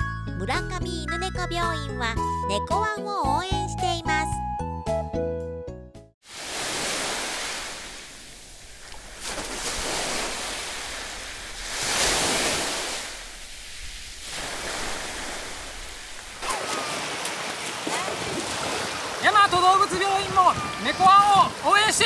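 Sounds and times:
small waves washing: 6.2s - 22.0s
feet splashing through water: 8.8s - 21.9s.

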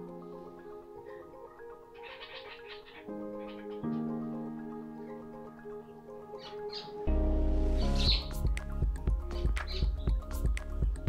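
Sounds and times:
high bird chirps: 1.9s - 4.2s, 6.4s - 7.1s, 7.8s - 8.4s
music with heavy bass line: 7.5s - 11.0s.

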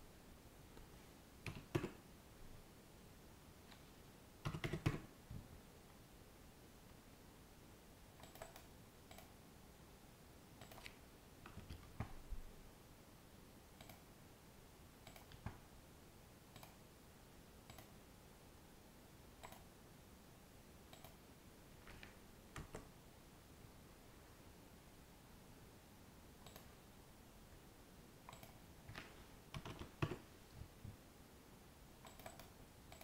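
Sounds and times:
quiet room hiss: 0.0s - 33.0s
mouse and keyboard clicks: 1.4s - 2.0s, 4.5s - 5.1s, 8.2s - 9.4s, 10.6s - 12.2s, 13.8s - 14.0s, 15.0s - 15.6s, 16.5s - 16.8s, 17.7s - 18.0s, 19.4s - 19.7s, 20.9s - 21.2s, 26.4s - 26.7s, 28.3s - 30.2s, 32.0s - 33.0s.

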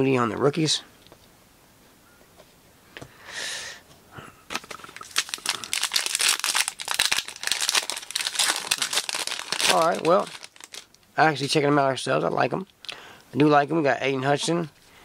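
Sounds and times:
foil wrapper crinkling and tearing: 4.5s - 11.6s.

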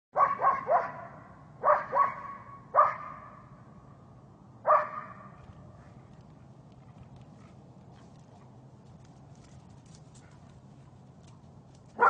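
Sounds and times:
dog barking: 0.2s - 3.4s, 4.7s - 5.4s.

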